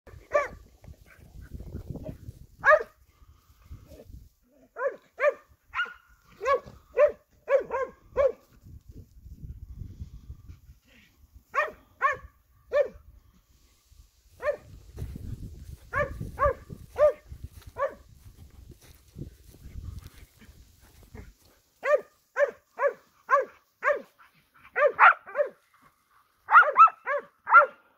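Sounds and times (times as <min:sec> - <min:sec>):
hound barking: 0:00.1 - 0:00.6, 0:02.6 - 0:03.0, 0:04.6 - 0:08.5, 0:11.5 - 0:13.0, 0:14.4 - 0:14.7, 0:15.9 - 0:18.1, 0:21.8 - 0:25.6, 0:26.4 - 0:27.9.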